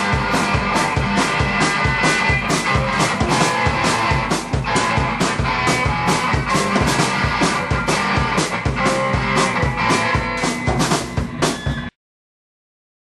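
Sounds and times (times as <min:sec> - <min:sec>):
drum kit steady beat: 0:00.0 - 0:11.9
ringing guitar chords: 0:00.0 - 0:11.9.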